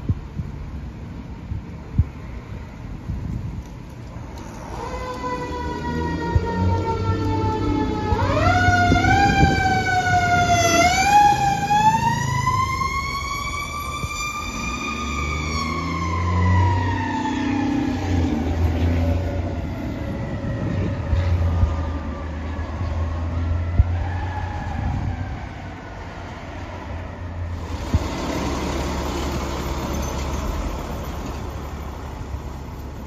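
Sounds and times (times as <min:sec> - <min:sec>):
fire truck siren: 0:04.4 - 0:33.0
heavy truck engine running: 0:27.5 - 0:33.0.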